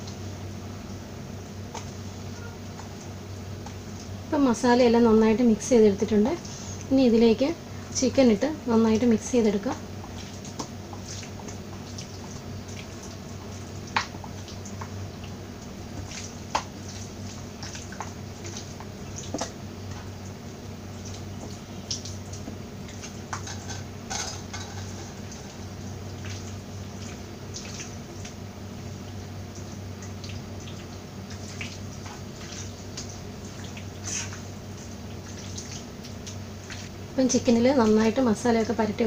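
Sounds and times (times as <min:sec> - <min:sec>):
steady low hum: 0:00.0 - 0:39.0
wet squishing of meat: 0:10.0 - 0:20.2, 0:25.2 - 0:28.4, 0:29.0 - 0:37.0.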